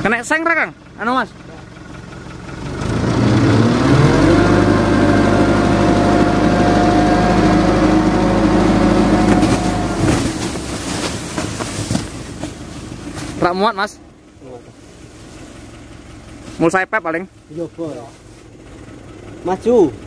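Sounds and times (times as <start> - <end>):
truck engine revving: 1.0 - 20.0
sacks sliding and thudding: 9.1 - 13.4.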